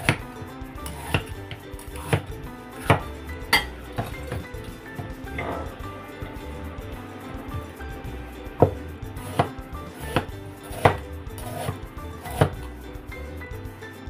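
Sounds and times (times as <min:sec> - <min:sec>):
knife chopping on wooden board: 0:00.9 - 0:03.0, 0:08.6 - 0:12.6.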